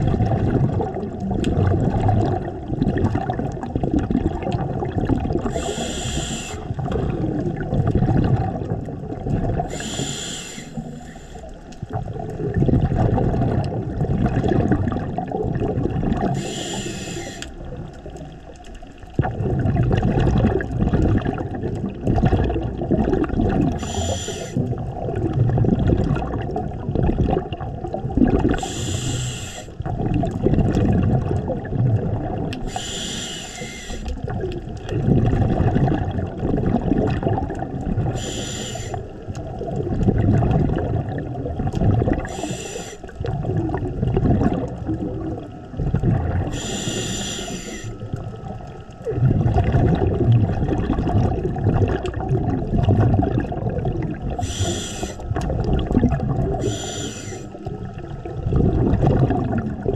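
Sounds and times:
exhaled air bubbling: 0:00.0 - 0:59.9
regulator hissing inhale: 0:05.4 - 0:06.8, 0:09.7 - 0:11.6, 0:16.3 - 0:17.6, 0:23.8 - 0:24.6, 0:28.6 - 0:29.8, 0:32.6 - 0:34.2, 0:38.1 - 0:39.2, 0:42.2 - 0:43.2, 0:46.5 - 0:48.0, 0:54.4 - 0:55.2, 0:56.6 - 0:57.7.

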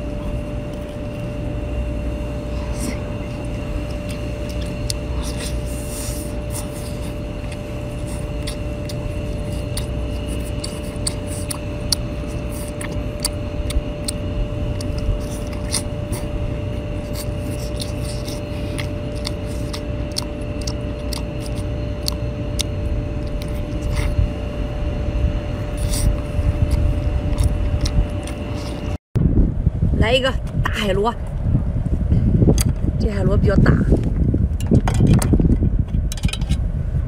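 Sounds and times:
constant hum: 0:00.0 - 0:37.0
steady low rumble: 0:00.0 - 0:37.0
wet chewing clicks and smacks: 0:03.8 - 0:24.4, 0:25.7 - 0:29.0.

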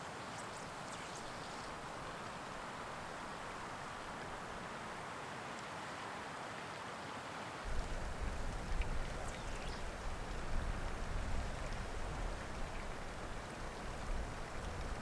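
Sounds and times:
wind buffeting microphone: 0:07.7 - 0:15.0.

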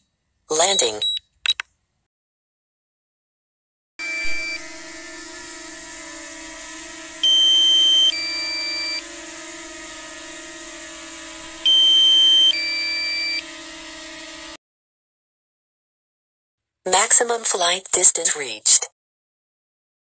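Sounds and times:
steady hum: 0:04.0 - 0:13.4.

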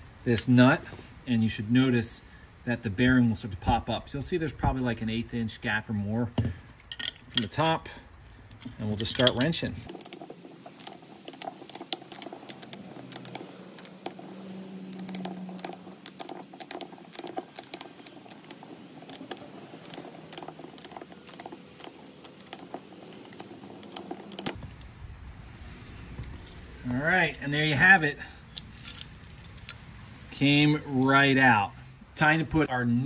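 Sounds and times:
wrench clicking on metal nut: 0:09.0 - 0:24.6.

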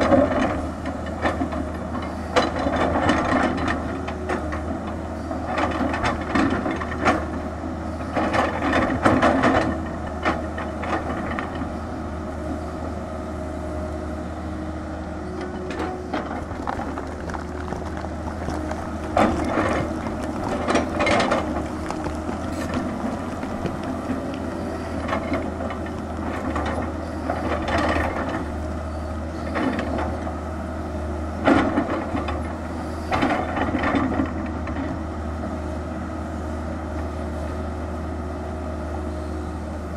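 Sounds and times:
excavator diesel engine running: 0:00.0 - 0:39.9
bucket clattering on rocks: 0:16.1 - 0:26.8.

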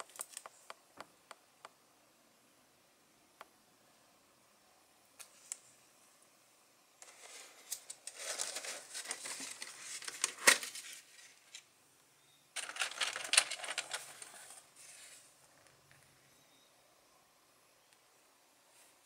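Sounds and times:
plastic cover crinkling: 0:07.0 - 0:11.6, 0:12.6 - 0:15.1.

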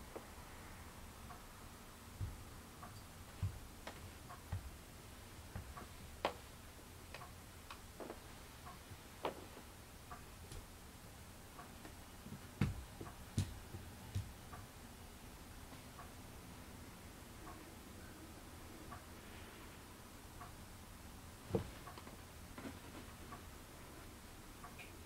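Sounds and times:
soft thumps: 0:02.2 - 0:02.4, 0:03.3 - 0:04.7, 0:12.3 - 0:14.4, 0:21.5 - 0:21.9.

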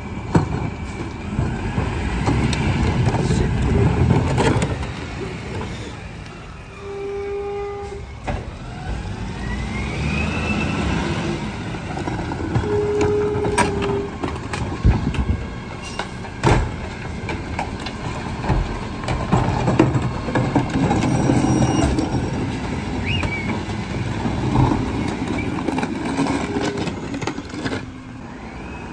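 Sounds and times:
garbage carts banging and knocking: 0:00.0 - 0:05.9, 0:11.1 - 0:28.2
garbage truck engine running: 0:08.1 - 0:28.9.

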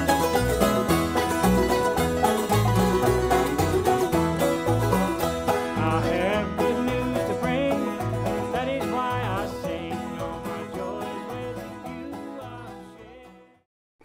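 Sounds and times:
upbeat country music: 0:00.0 - 0:13.7.

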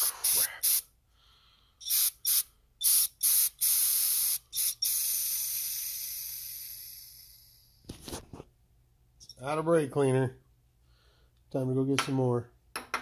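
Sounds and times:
aerosol can spraying: 0:00.0 - 0:00.9, 0:01.8 - 0:07.6.

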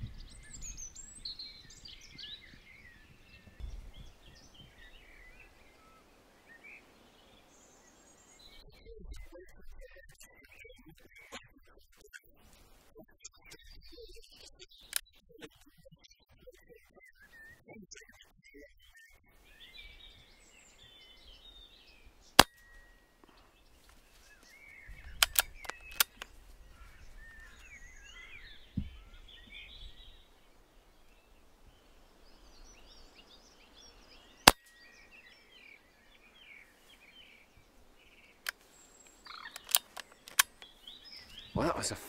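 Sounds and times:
birds singing: 0:00.0 - 0:42.0
soft clicks: 0:25.0 - 0:26.4, 0:38.4 - 0:40.7.

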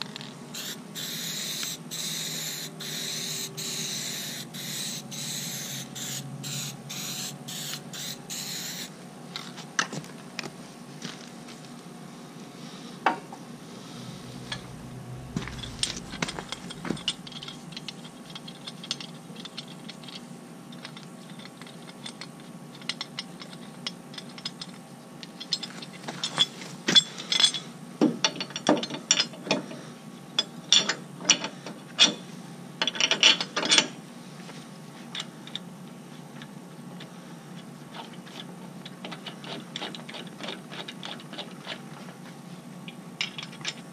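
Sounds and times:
aerosol spray can hissing: 0:00.6 - 0:08.9.

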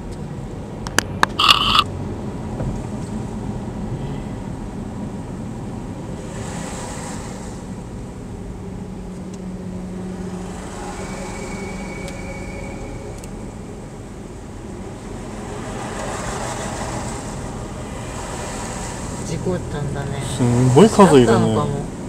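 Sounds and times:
car engine and road rumble: 0:00.0 - 0:22.0
tyres hissing on wet road: 0:06.0 - 0:08.4, 0:15.0 - 0:21.9.

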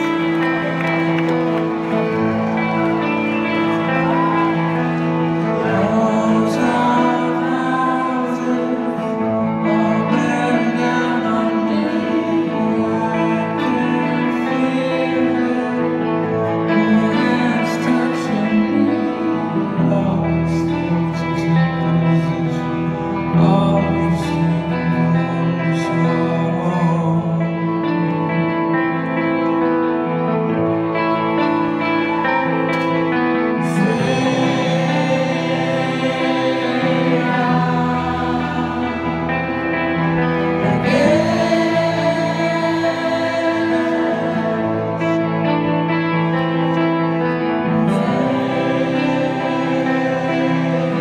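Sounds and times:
bass: 0:00.0 - 0:51.0
electric guitar: 0:00.0 - 0:51.0
man singing: 0:03.0 - 0:51.0.

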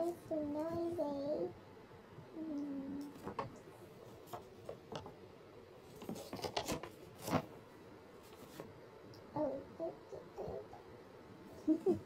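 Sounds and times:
paper pages rustling: 0:05.9 - 0:07.5, 0:08.2 - 0:08.7.

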